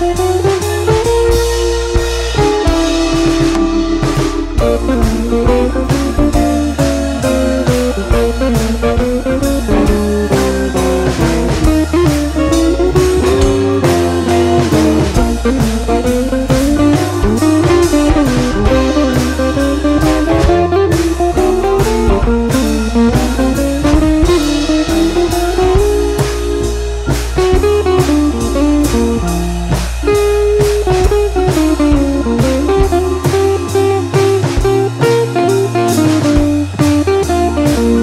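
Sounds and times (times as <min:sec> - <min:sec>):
bass: 0:00.0 - 0:38.0
blues guitar instrumental: 0:00.0 - 0:38.0
steady drum beat: 0:00.0 - 0:38.0.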